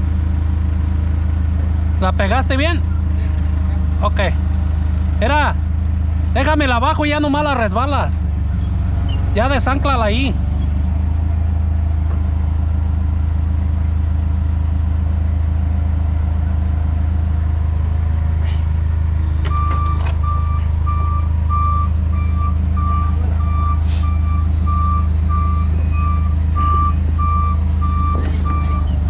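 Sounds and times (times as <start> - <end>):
forklift engine running: 0.0 - 29.0
reversing alarm beeping: 19.4 - 29.0.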